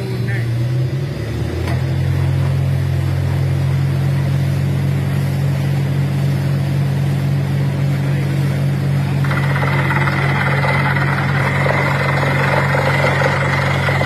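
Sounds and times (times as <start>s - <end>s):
drilling rig engine droning: 6.2s - 14.0s
compressed air blasting water: 9.2s - 14.0s.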